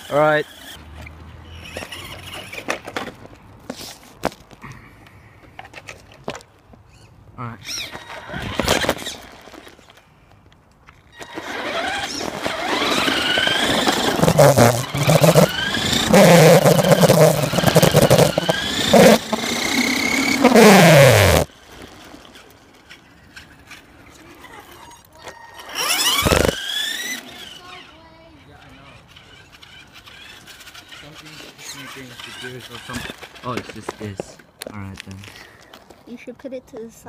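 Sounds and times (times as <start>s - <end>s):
rc car motor whining: 0.0s - 0.8s, 1.4s - 3.1s, 7.6s - 10.0s, 11.1s - 34.2s
wheels rattling on tarmac: 0.0s - 4.7s, 10.9s - 37.0s.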